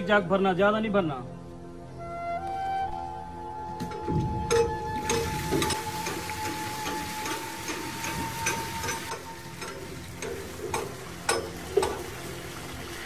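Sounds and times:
wheel mechanism clicking and knocking: 4.0s - 12.2s
water splashing into trough: 4.6s - 13.0s.

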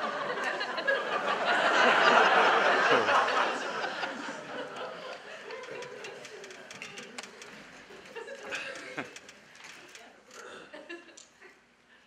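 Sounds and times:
audience laughing: 0.0s - 9.4s.

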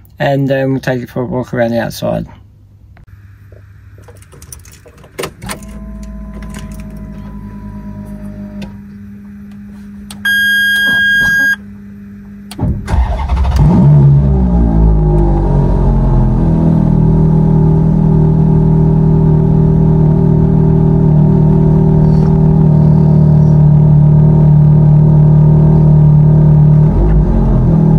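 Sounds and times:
steady hum: 0.0s - 27.9s
car engine starting and idling: 4.0s - 8.8s, 12.4s - 27.9s
beep: 10.2s - 11.6s.

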